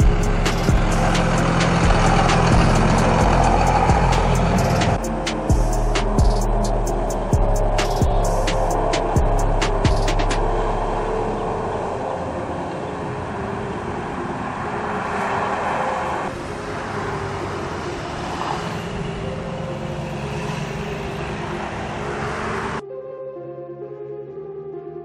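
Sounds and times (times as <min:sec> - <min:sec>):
traffic of cars and trucks: 0:00.0 - 0:22.8.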